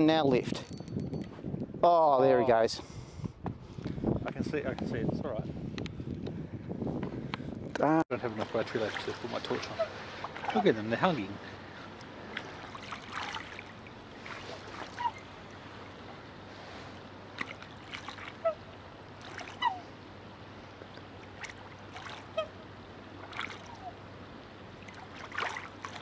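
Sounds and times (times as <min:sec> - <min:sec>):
splashing in water: 0:08.4 - 0:10.8, 0:12.2 - 0:16.0, 0:17.3 - 0:19.9, 0:20.9 - 0:22.6, 0:23.2 - 0:24.0, 0:24.7 - 0:26.0
swans honking: 0:09.6 - 0:10.8, 0:14.5 - 0:16.2, 0:18.0 - 0:20.0, 0:21.2 - 0:24.1.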